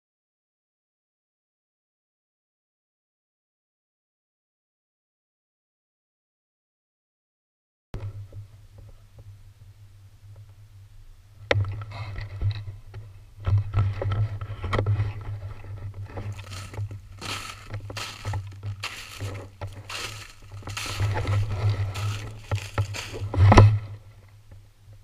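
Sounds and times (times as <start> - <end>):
footsteps crunching through snow: 16.0 - 24.0
steady low rumble: 16.0 - 24.3.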